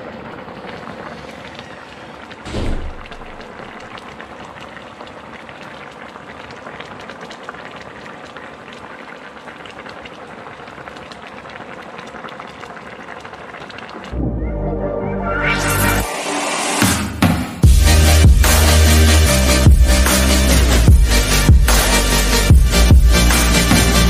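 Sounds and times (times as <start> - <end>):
broth bubbling in a pan: 0.0 - 14.2.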